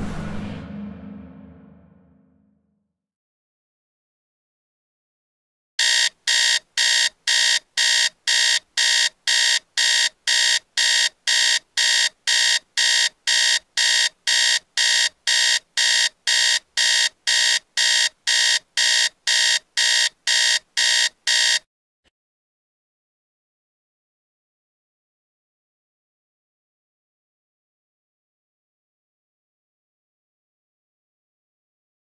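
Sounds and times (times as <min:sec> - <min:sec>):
alarm clock beeping: 0:05.8 - 0:21.6.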